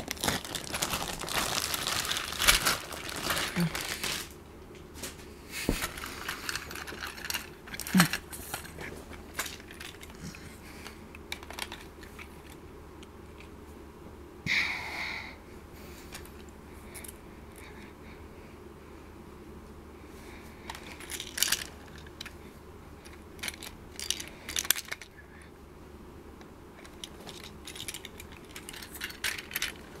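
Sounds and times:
plastic toy train cars clicking: 5.8 - 8.7, 11.3 - 12.6, 20.7 - 22.3, 23.0 - 25.1, 26.8 - 30.0.

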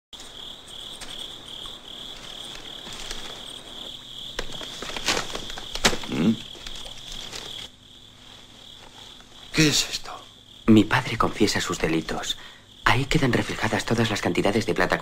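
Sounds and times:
paper rustling: 0.2 - 9.5
crickets chirping: 0.2 - 15.0.

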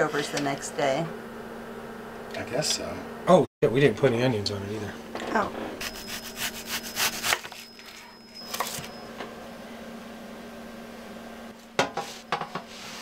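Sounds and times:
knife cutting onion on wooden board: 5.8 - 7.6.

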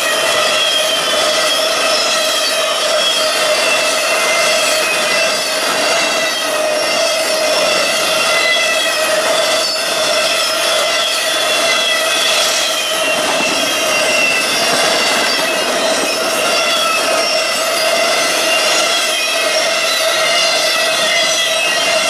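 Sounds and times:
high steady ringing tones: 0.0 - 22.0
train wheels rushing on rail: 0.0 - 22.0.

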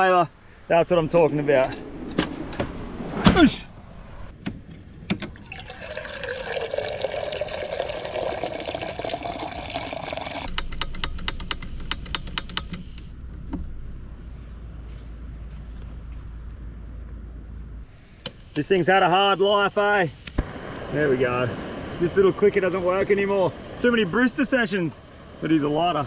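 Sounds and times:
water pouring into a kettle: 5.4 - 10.5.

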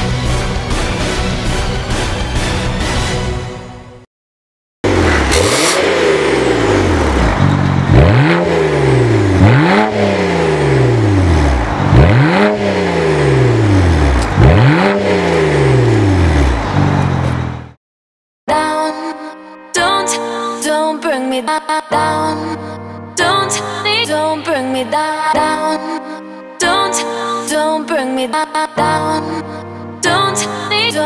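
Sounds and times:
car engine revving: 4.8 - 17.8.

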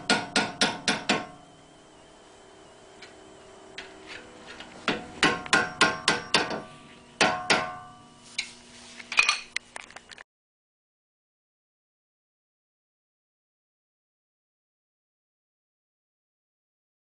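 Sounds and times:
hammer striking metal: 0.0 - 1.4, 4.5 - 8.1.

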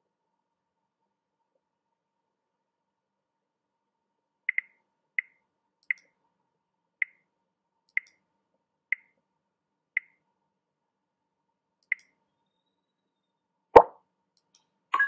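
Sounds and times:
mouse clicks: 4.5 - 6.2, 7.9 - 8.2, 8.9 - 9.2, 10.0 - 10.2, 11.8 - 12.2, 13.8 - 14.7.

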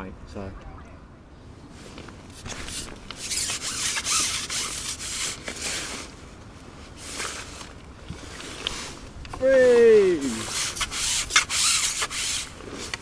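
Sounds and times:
waterproof jacket rubbing: 1.8 - 6.2, 10.1 - 13.0.

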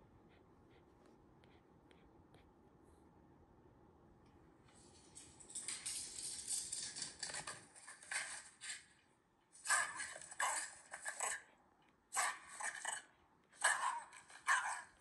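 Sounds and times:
dog scrabbling and clattering: 5.0 - 8.8.

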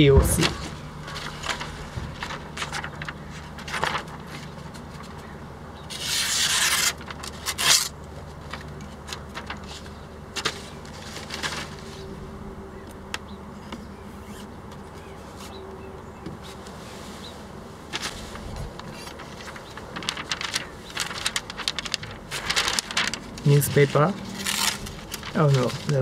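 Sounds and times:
paper rustling: 0.0 - 12.4, 16.4 - 26.0
knife slicing paper: 5.9 - 8.0, 18.0 - 26.0.

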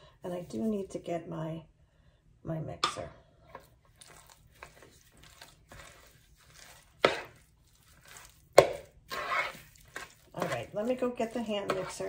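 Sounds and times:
utensils scraping and rustling: 4.0 - 12.0.

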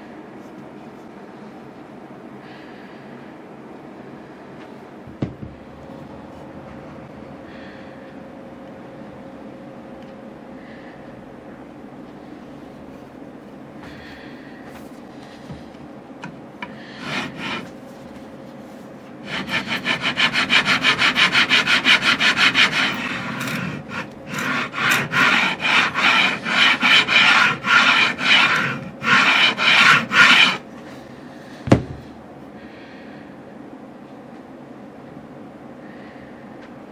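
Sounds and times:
file rasping on metal: 16.6 - 17.7, 19.2 - 30.7.

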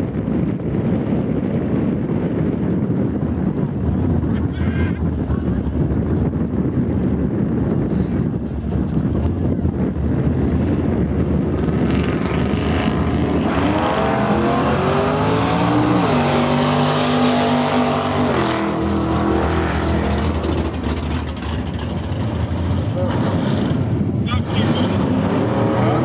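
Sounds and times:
drag car engine accelerating: 8.3 - 26.0.

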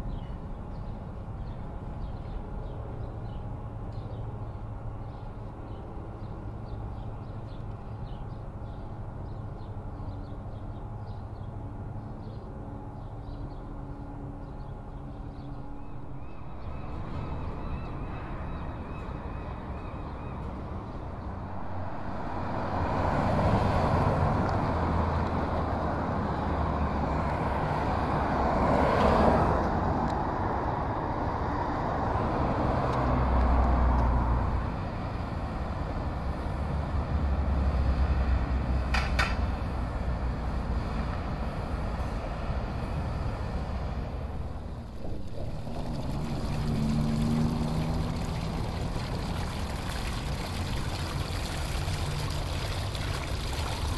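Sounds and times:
traffic hum: 0.0 - 53.9
cars passing: 14.4 - 53.9.

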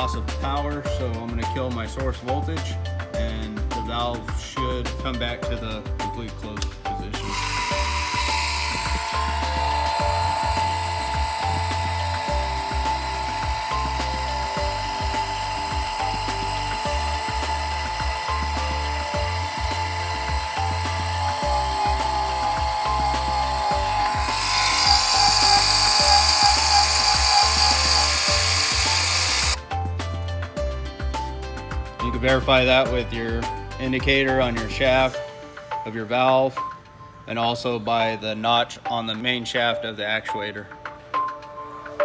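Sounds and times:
background music: 0.0 - 42.0
electric actuator motor whine: 7.2 - 29.6.

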